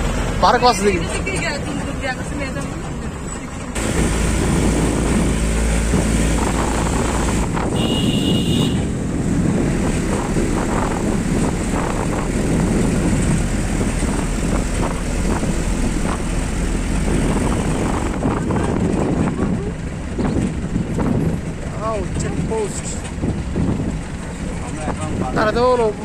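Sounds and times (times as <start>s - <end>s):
vehicle engine and road noise: 0.0s - 26.0s
rushing air: 3.8s - 24.3s.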